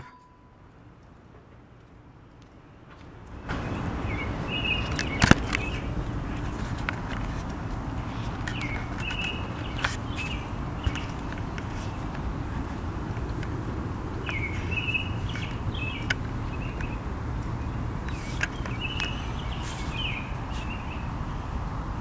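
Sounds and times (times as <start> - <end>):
birds chirping: 3.6 - 7.4, 8.0 - 21.4.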